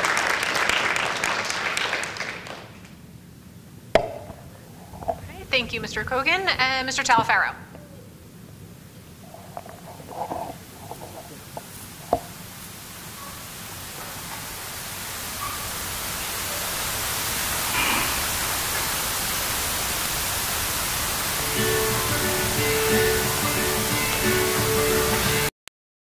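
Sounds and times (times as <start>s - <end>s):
even hiss: 3.0s - 25.5s
sharp knocks: 4.0s - 4.4s.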